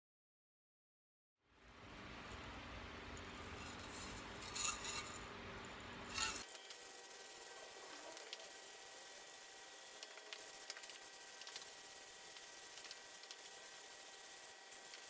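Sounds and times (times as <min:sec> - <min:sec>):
spray paint hissing: 0:06.1 - 0:15.0.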